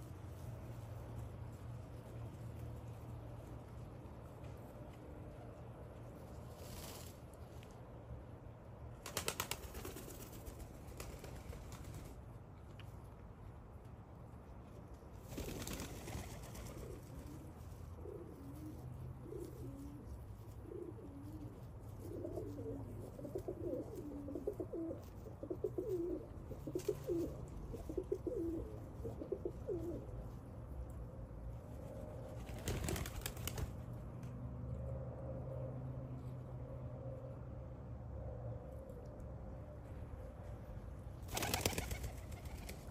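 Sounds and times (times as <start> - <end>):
pigeons cooing: 15.6 - 30.1.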